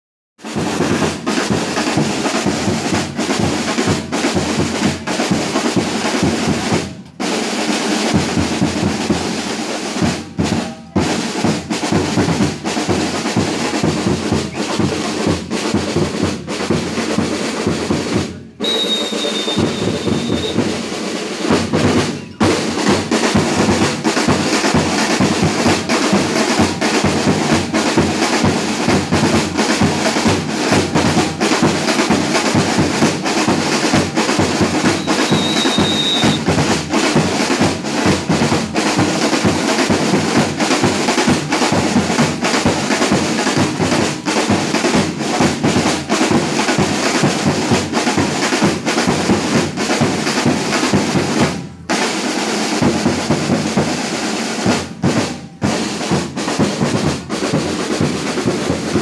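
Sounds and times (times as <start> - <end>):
percussion band drumming: 0.4 - 59.0
high steady tone: 18.6 - 20.7.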